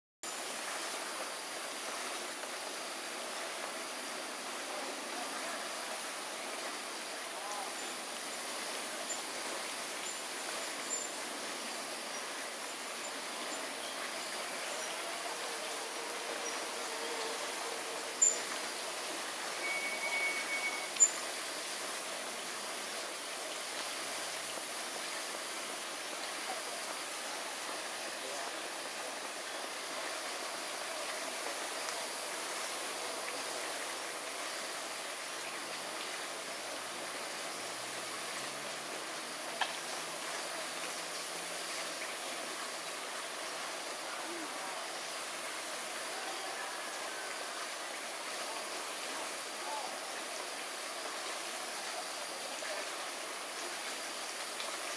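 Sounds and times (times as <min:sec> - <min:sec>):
brief thin tone: 0:19.6 - 0:21.2.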